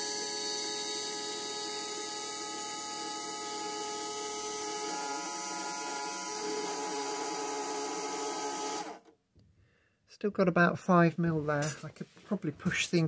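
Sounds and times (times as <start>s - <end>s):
milling machine whine and whir: 0.0s - 9.0s.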